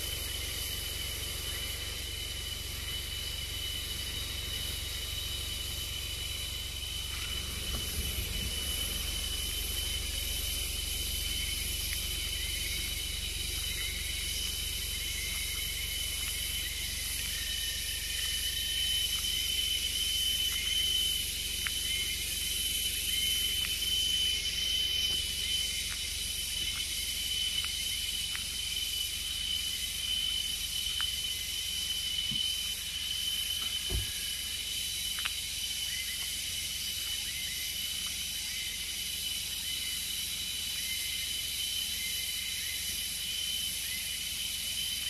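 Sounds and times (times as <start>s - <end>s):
low rumble: 0.0s - 31.0s
insect chorus drone: 0.0s - 45.0s.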